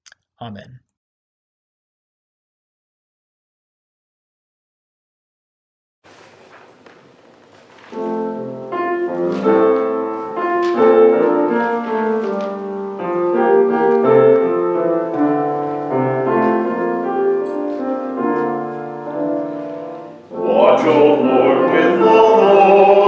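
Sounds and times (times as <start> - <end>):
slow piano hymn introduction: 6.1 - 23.0.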